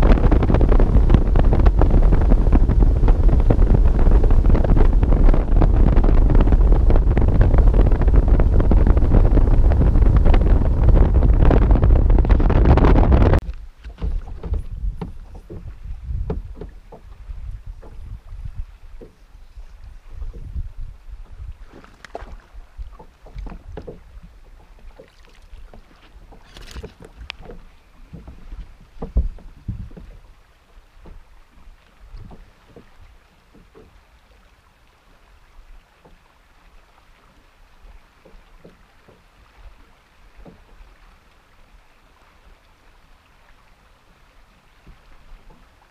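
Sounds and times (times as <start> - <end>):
knocks and thumps on boat deck: 0.0 - 19.3, 20.2 - 30.4, 31.0 - 34.0, 38.2 - 39.3, 40.3 - 40.8, 44.8 - 45.8
wind buffeting microphone: 0.0 - 30.4, 32.0 - 33.9
water lapping against boat hull: 0.0 - 45.9.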